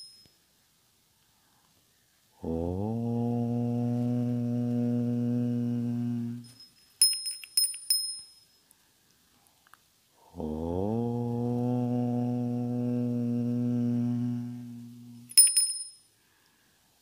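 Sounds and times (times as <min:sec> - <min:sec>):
small bell ringing: 0:00.0 - 0:00.4, 0:06.5 - 0:08.6, 0:15.3 - 0:16.1
man chanting om: 0:02.4 - 0:06.6, 0:10.2 - 0:15.3.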